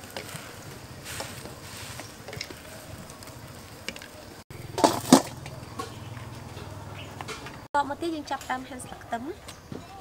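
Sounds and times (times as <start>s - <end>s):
water boiling: 0.0s - 6.5s
metal wok lid clattering: 4.6s - 7.6s.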